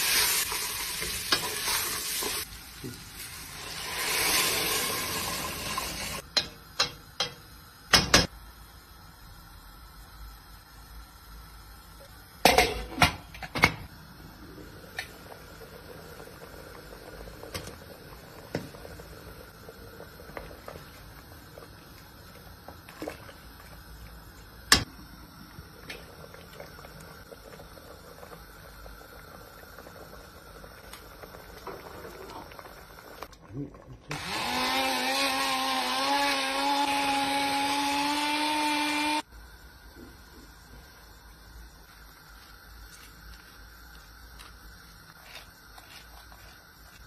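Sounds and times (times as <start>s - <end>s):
soup simmering in a pot: 0.0s - 7.4s, 13.9s - 34.1s.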